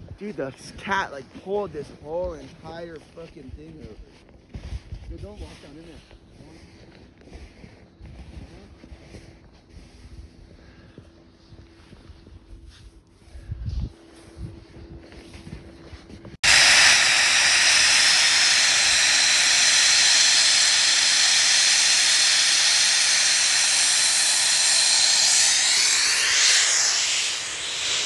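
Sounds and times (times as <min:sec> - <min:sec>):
snow guns hissing: 0:16.4 - 0:28.0.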